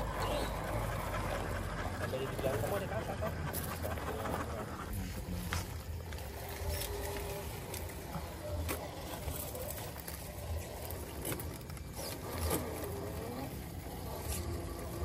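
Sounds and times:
low rumbling: 0.0 - 15.0
rc car motor and gears whining: 0.0 - 15.0
clicks of rocks and tyres: 5.0 - 15.0.

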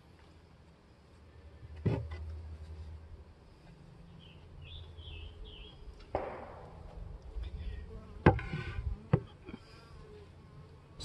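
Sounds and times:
honeybees buzzing: 0.6 - 11.0
sharp knock: 6.1 - 7.1.

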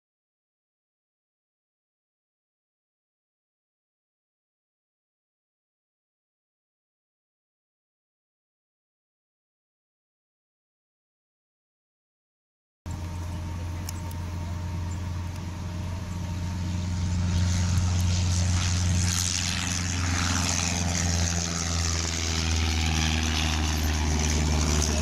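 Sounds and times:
propeller airplane engine running: 12.9 - 25.0.

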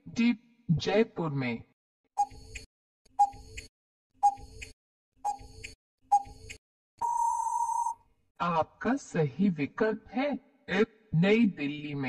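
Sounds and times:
clock-like ticks: 2.2 - 6.6
long steady beep: 7.0 - 8.0.

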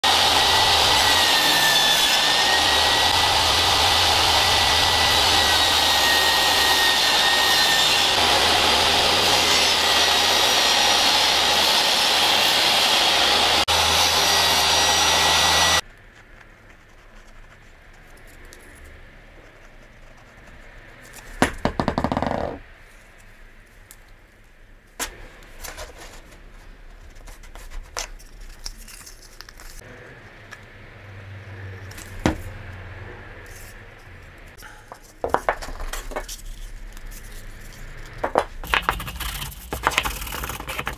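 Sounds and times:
table saw cutting wood: 0.0 - 15.8.

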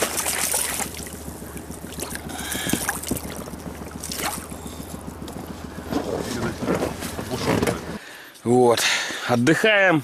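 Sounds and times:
fish splashing and thrashing: 0.0 - 5.2
water lapping against boat hull: 0.0 - 8.0.

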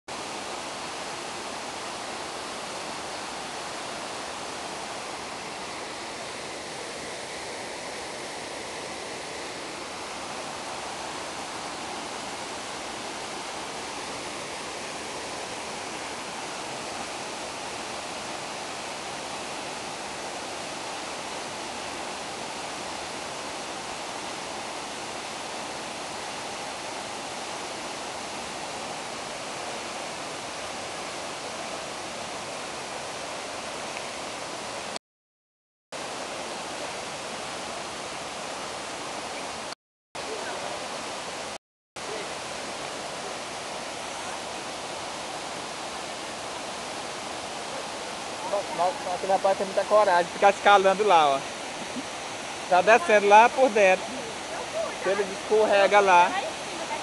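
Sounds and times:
waterfall splashing into pool: 36.0 - 57.0.

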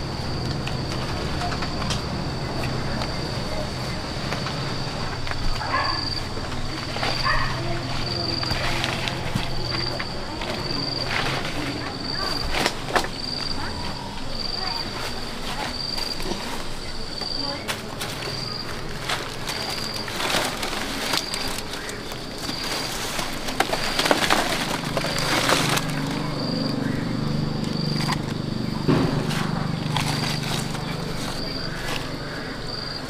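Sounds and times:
insect chirping: 0.0 - 33.0
rustling: 2.9 - 33.0
plastic bag rustling: 4.7 - 33.0
fruit tumbling into wicker basket: 17.6 - 26.5, 27.7 - 32.3.

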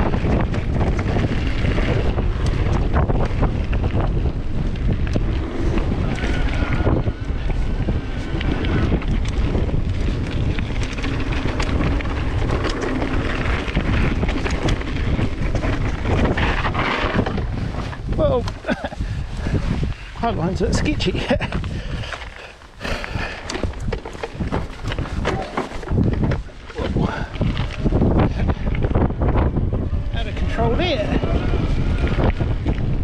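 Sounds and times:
bike clicks and rattles: 0.0 - 33.0
wind buffeting microphone: 0.0 - 33.0
tyre rumble on dirt: 22.9 - 29.7.

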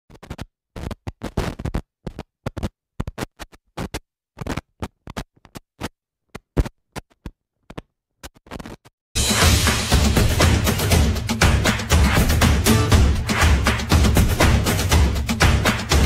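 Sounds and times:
film pops and crackles: 0.1 - 8.9.

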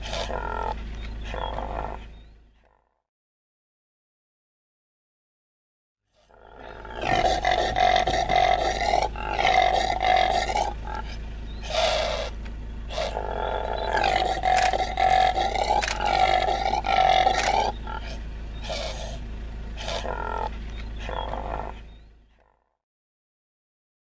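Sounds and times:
antelope roaring: 0.0 - 2.7, 6.2 - 22.1.

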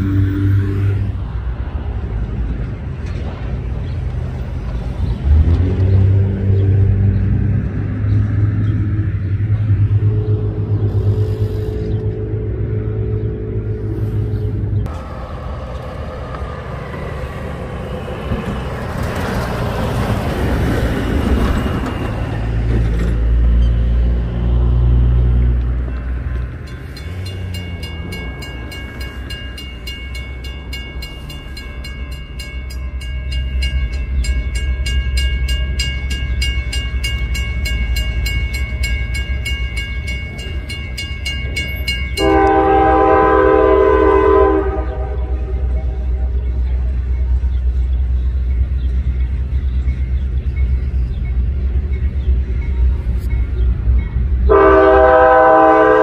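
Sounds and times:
locomotive air horn: 0.0 - 1.2, 42.2 - 46.1, 54.5 - 56.0
diesel locomotives rumbling: 0.0 - 56.0
warning bell ringing rapidly: 26.7 - 42.3.

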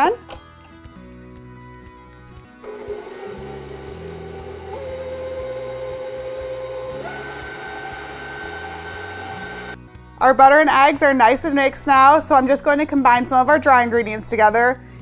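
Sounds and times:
stand mixer motor whining: 2.6 - 9.8.

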